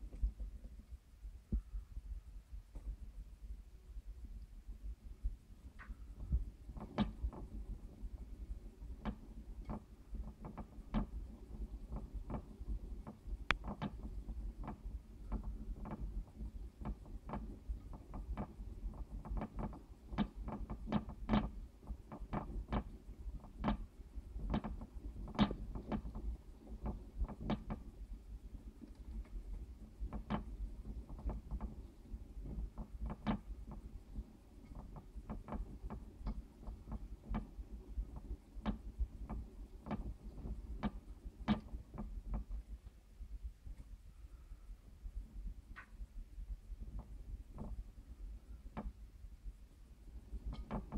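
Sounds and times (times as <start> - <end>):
light clicks and taps: 0.0 - 1.7, 2.7 - 3.0, 5.6 - 28.1, 28.7 - 43.0, 45.7 - 46.0, 46.8 - 47.9, 50.2 - 50.9.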